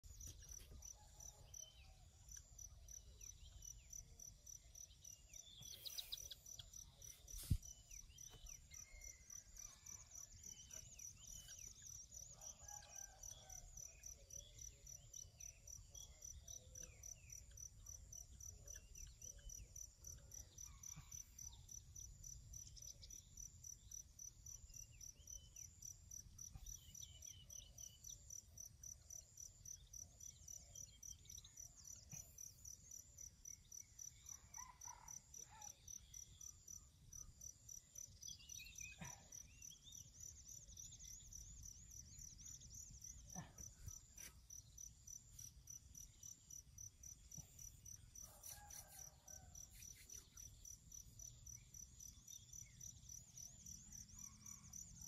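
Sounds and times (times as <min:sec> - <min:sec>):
crickets chirping: 0:35.9 - 0:55.0.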